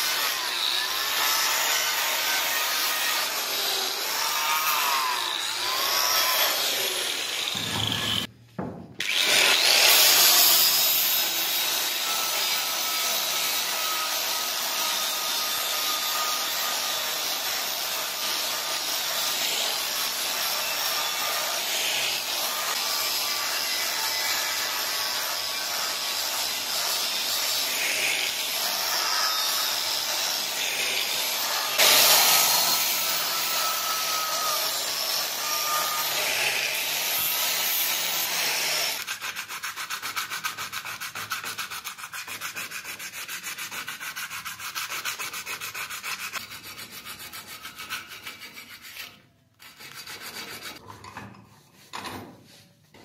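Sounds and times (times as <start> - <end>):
angle grinder grinding steel: 0.0 - 8.3, 9.0 - 39.6.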